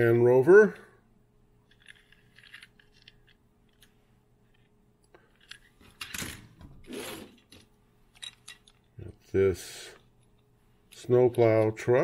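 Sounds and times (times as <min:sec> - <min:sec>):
rustling and clattering of toys: 0:01.6 - 0:09.1.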